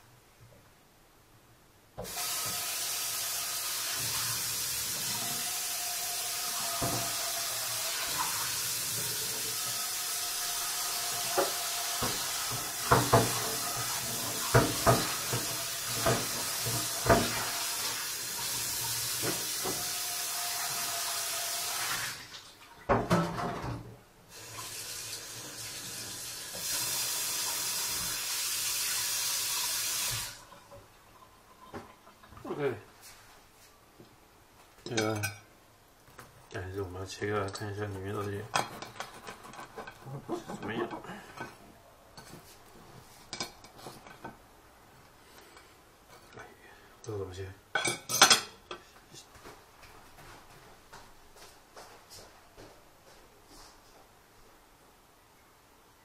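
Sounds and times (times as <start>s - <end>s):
kitchen tap running: 2.0s - 23.6s, 24.3s - 32.4s
dishes and utensils clinking: 34.8s - 35.5s, 37.4s - 41.6s, 47.8s - 48.8s.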